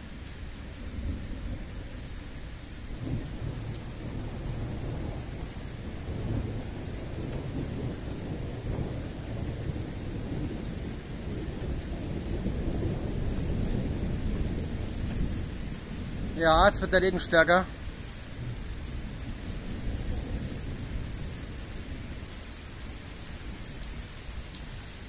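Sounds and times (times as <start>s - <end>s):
steady rain: 0.0s - 25.0s
rolling thunder: 2.9s - 17.5s, 18.4s - 22.2s.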